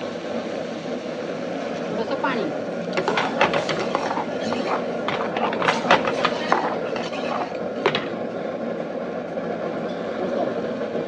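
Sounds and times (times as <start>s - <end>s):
ladle stirring thick gravy: 3.0s - 7.8s.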